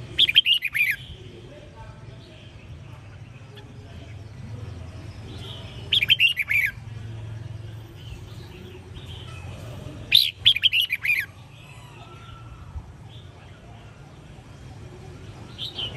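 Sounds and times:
bird singing whistled notes: 0:00.2 - 0:01.1, 0:05.4 - 0:06.8, 0:10.1 - 0:11.3.

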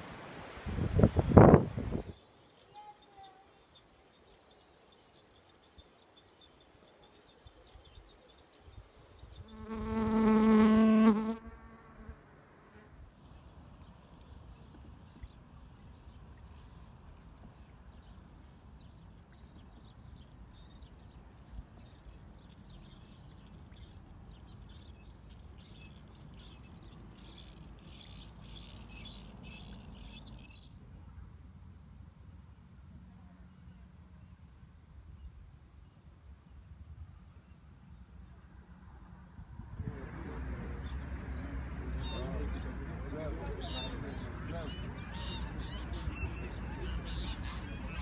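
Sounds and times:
faint outdoor hiss: 0:00.0 - 0:48.0
insect buzzing: 0:09.3 - 0:30.8.

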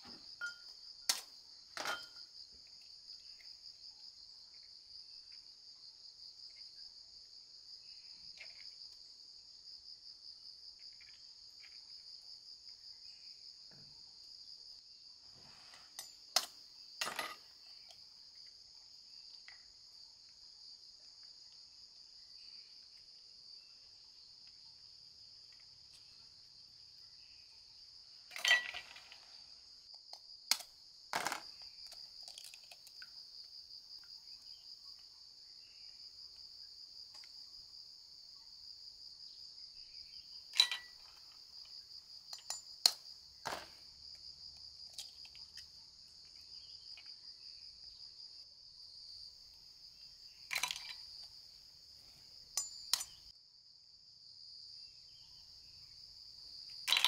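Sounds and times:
pulsing insect chorus: 0:00.0 - 0:57.0
shells set on china plate: 0:28.3 - 0:29.2, 0:40.5 - 0:41.2, 0:50.5 - 0:51.1.

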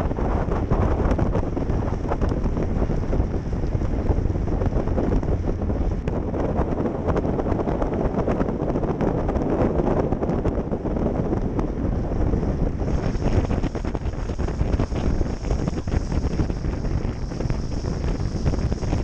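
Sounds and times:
vehicle and road noise: 0:00.0 - 0:19.0
wind buffeting microphone: 0:00.0 - 0:19.0.

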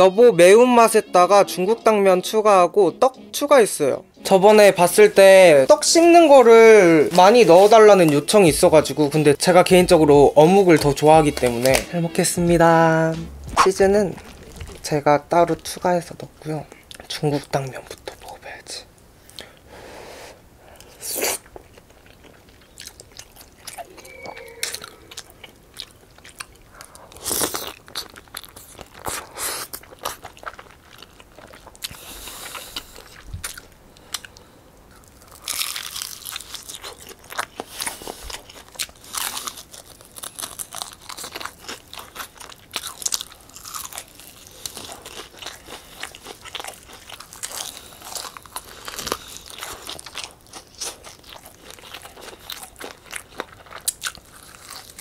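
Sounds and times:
crisp crunching bites: 0:13.4 - 0:15.7, 0:27.2 - 0:31.9, 0:35.0 - 0:55.0
slurping and chewing noodles: 0:20.8 - 0:55.0.

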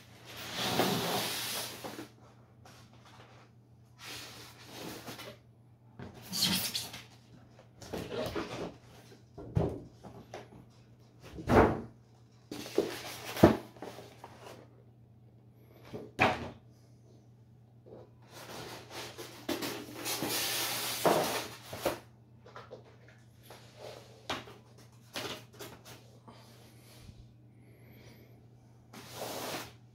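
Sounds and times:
cardboard rustling and scraping: 0:00.1 - 0:05.4, 0:12.5 - 0:14.7, 0:28.9 - 0:29.8
foam tray sliding: 0:00.3 - 0:02.0.

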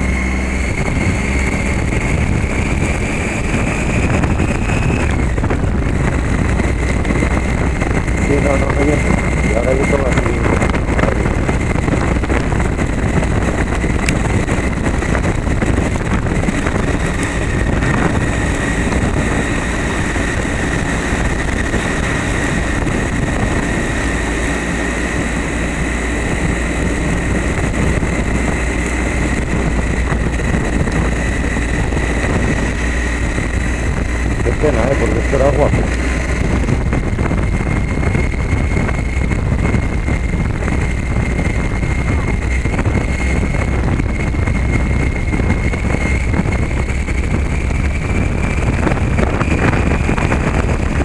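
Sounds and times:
motorcycle engine and tyre rumble: 0:00.0 - 0:51.0
wind noise on camera: 0:00.0 - 0:51.0
thin high whine: 0:02.9 - 0:05.4.

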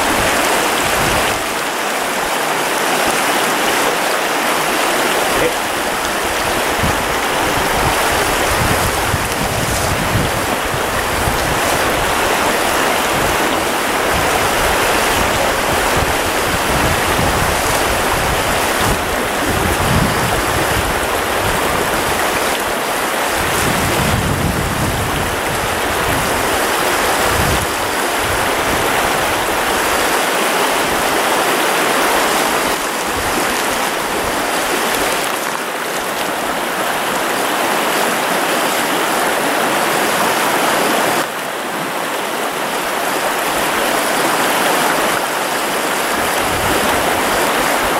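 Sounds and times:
wind rumble on microphone: 0:00.0 - 0:01.6, 0:05.4 - 0:30.1, 0:46.0 - 0:47.9
creek rushing over riffles: 0:00.0 - 0:47.9.

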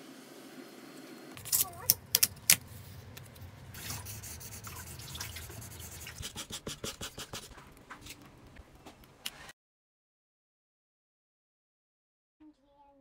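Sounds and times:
pen scratching on paper tube: 0:03.8 - 0:07.6.

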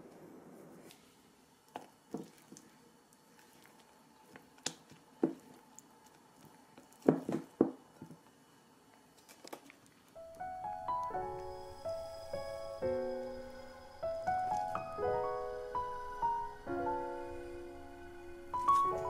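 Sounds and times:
soft piano music: 0:10.2 - 0:19.0.

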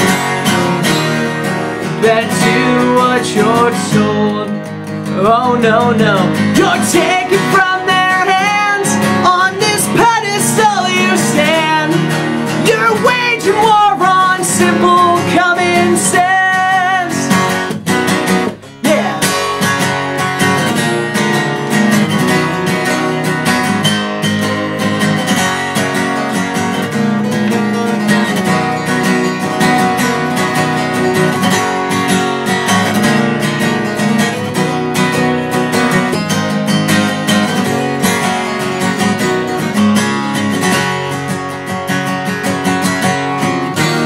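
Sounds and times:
acoustic guitar strumming: 0:00.0 - 0:44.0.

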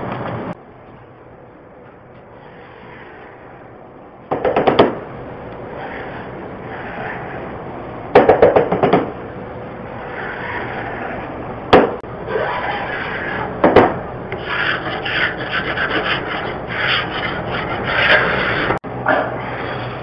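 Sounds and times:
sharp knocks: 0:04.3 - 0:05.0, 0:08.1 - 0:09.2, 0:11.7 - 0:12.0
sanding block on wooden door: 0:14.4 - 0:18.8.

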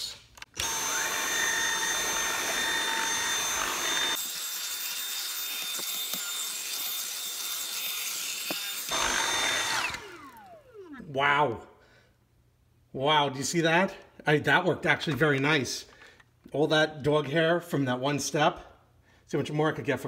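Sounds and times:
cordless vacuum whining: 0:00.4 - 0:04.4, 0:08.4 - 0:11.2.

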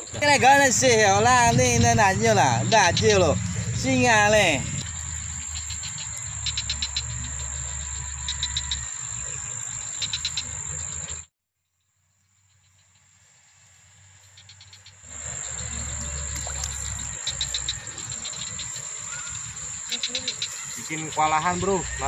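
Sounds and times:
low rumble: 0:00.0 - 0:08.7
insect buzz: 0:00.0 - 0:22.0
rapid insect chirps: 0:00.0 - 0:22.0.

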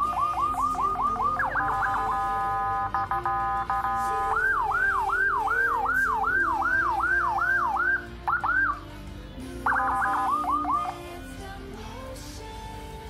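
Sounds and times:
electronic siren yelp: 0:00.0 - 0:08.8, 0:09.7 - 0:11.0.

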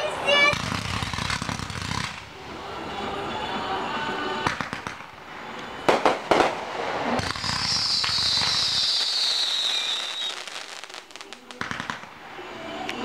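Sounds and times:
fireworks crackling: 0:00.0 - 0:02.6, 0:04.4 - 0:13.0
firework bangs: 0:00.3 - 0:02.4, 0:04.4 - 0:05.2, 0:05.8 - 0:12.2
high whistling firework hiss: 0:05.9 - 0:12.8.

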